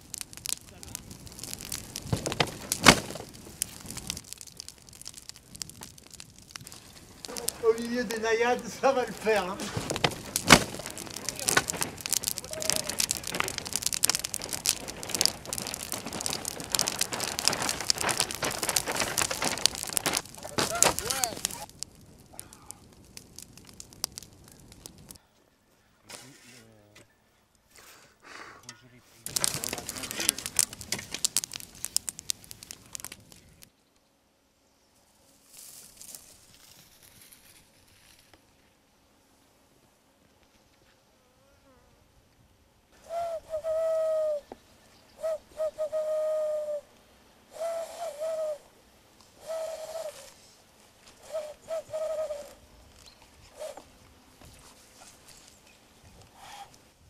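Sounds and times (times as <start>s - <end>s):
bonfire crackling: 0.0s - 25.4s, 26.0s - 41.0s, 42.2s - 57.0s
faint hiss: 0.0s - 57.0s
sharp loud crack: 0.6s - 4.0s, 7.2s - 21.7s.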